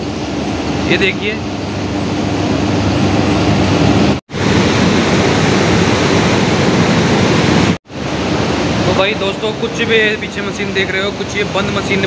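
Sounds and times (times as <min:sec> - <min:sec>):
generator machine hum: 0:00.0 - 0:12.0
white water rushing: 0:04.3 - 0:12.0.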